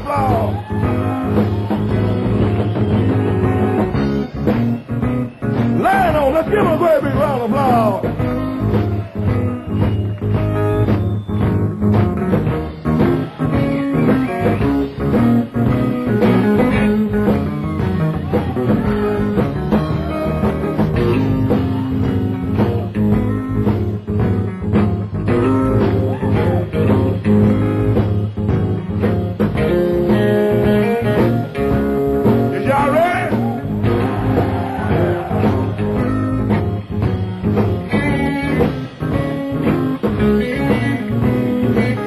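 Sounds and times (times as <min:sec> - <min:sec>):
electric blues band playing: 0:00.0 - 0:42.0
electric guitar: 0:00.0 - 0:42.0.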